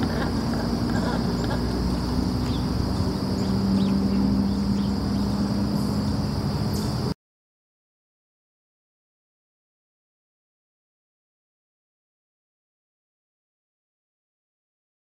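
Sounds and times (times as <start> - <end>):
high insect drone: 0.0 - 7.2
low steady hum: 0.0 - 7.2
bird chirps: 0.8 - 7.1.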